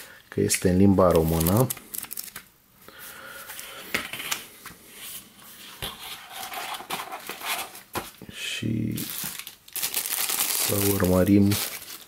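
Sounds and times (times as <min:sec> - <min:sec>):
cardboard rustling and scraping: 0:05.1 - 0:08.2.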